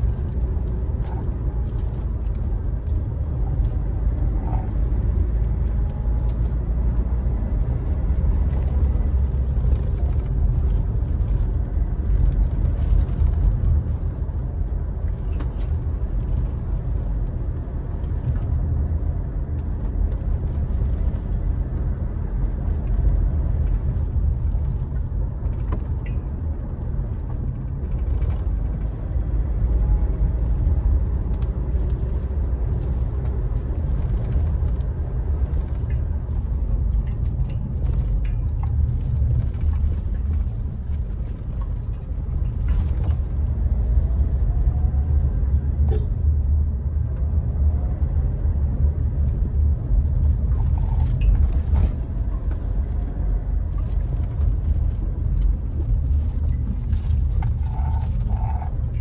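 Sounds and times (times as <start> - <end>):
diesel engine cabin drone: 0.0 - 59.0.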